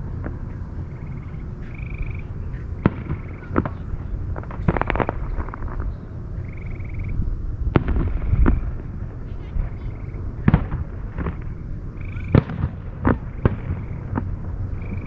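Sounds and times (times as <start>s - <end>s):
low steady rumble: 0.0s - 15.0s
distant firework bangs: 0.1s - 6.1s, 7.7s - 15.0s
crackling firework pops: 2.8s - 6.0s, 7.8s - 8.6s, 10.4s - 11.6s, 12.3s - 15.0s.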